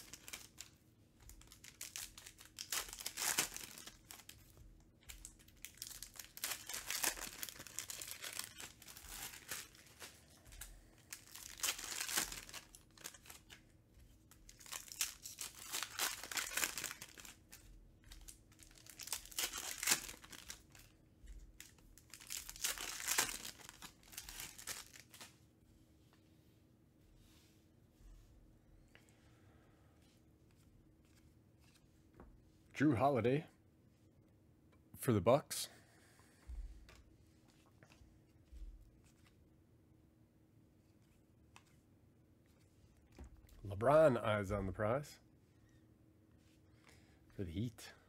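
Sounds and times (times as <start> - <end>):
foil wrappers crinkling and tearing: 0.0 - 13.6, 14.3 - 21.0, 21.6 - 25.3.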